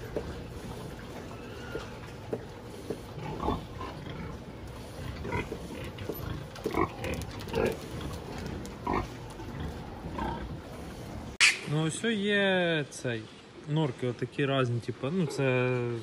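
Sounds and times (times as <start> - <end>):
pigs grunting: 0.0 - 11.4
low background noise: 0.0 - 16.0.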